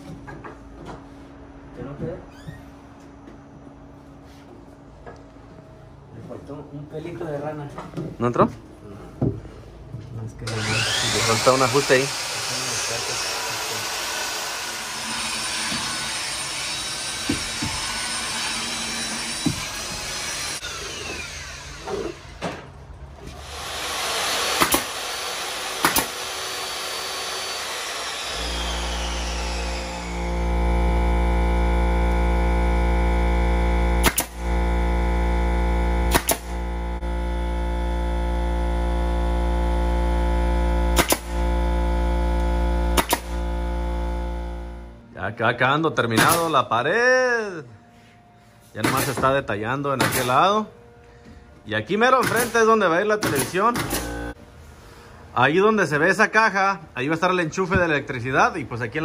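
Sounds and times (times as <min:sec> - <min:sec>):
nail gun firing into wood: 0:23.7 - 0:27.2, 0:34.0 - 0:34.6, 0:36.0 - 0:36.7, 0:40.9 - 0:41.5, 0:42.9 - 0:43.5, 0:46.2 - 0:46.6, 0:48.8 - 0:49.3, 0:50.0 - 0:50.4, 0:52.2 - 0:54.2.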